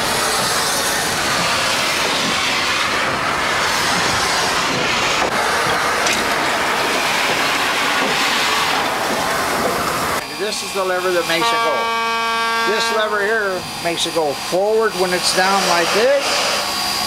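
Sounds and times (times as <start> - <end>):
steam locomotive venting steam: 0.0 - 17.0.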